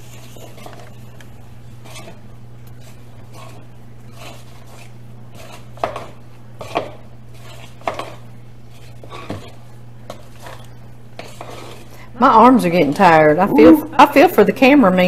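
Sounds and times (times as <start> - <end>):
dough stirred in bowl: 0.0 - 13.8
steady low hum: 11.8 - 15.0.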